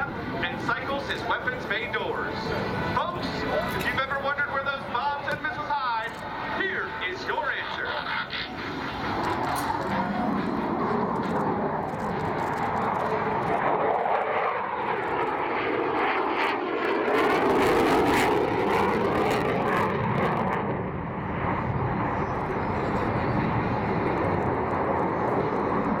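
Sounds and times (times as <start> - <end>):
jet roar flying past: 0.0 - 26.0.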